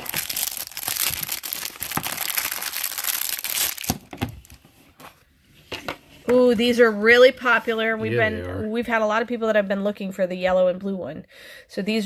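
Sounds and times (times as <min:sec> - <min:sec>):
plastic wrap crinkling and tearing: 0:00.0 - 0:04.7.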